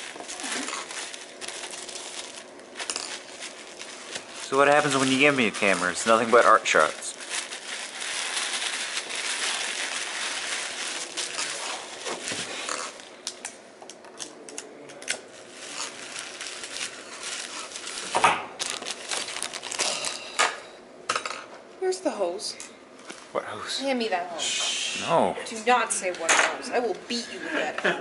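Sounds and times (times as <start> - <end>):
clicks and crinkling rustles: 0.0 - 20.3.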